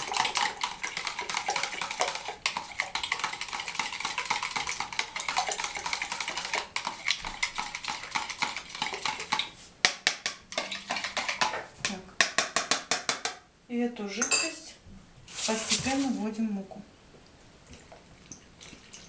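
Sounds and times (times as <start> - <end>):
utensil beating eggs in jug: 0.0 - 11.7, 17.7 - 19.0.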